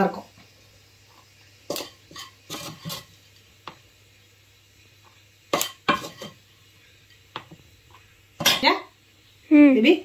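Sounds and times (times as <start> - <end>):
wooden spatula scraping a pan: 1.0 - 3.8, 5.0 - 6.5.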